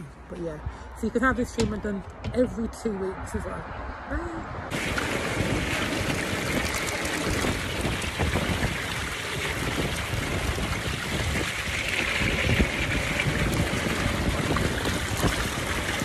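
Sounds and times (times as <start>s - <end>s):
hot tub water bubbling: 4.7s - 16.0s.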